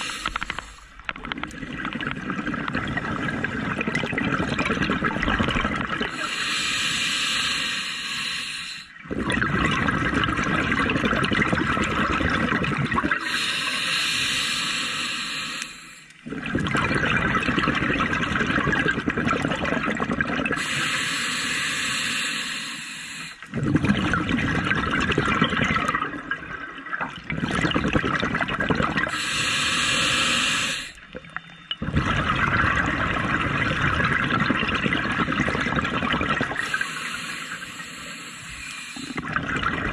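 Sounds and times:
hissing regulator inhale: 0:00.0 - 0:01.0, 0:06.2 - 0:09.0, 0:13.2 - 0:16.2, 0:20.6 - 0:23.5, 0:29.0 - 0:31.1, 0:36.4 - 0:39.3
exhaled bubbles gurgling: 0:00.0 - 0:08.2, 0:08.8 - 0:15.4, 0:16.1 - 0:22.2, 0:23.1 - 0:39.9.

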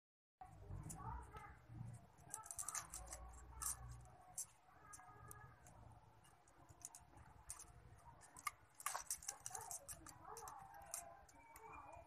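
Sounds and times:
bamboo sticks clicking and tapping: 0:02.2 - 0:12.0.

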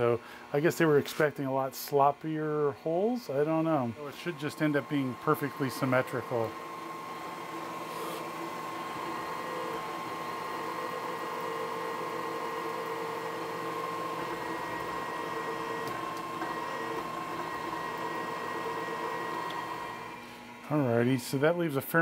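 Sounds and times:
milling machine drilling metal: 0:04.1 - 0:20.7.

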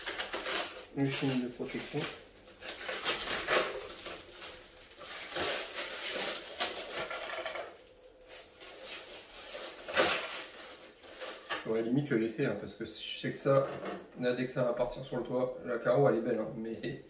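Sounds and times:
packaging rustling: 0:00.0 - 0:11.8.

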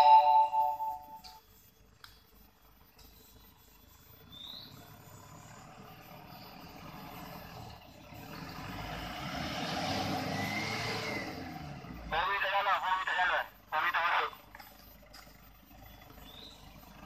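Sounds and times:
pickup truck engine climbing: 0:01.9 - 0:13.4.

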